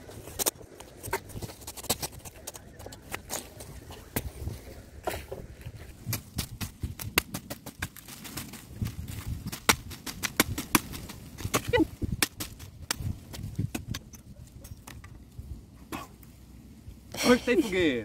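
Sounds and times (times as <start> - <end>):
machete chopping branch: 9.4 - 14.0.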